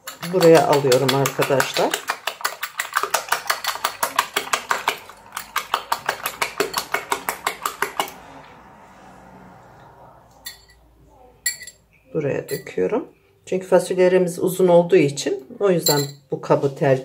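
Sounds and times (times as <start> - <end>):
whisk clinking against ceramic bowl: 0.0 - 8.2.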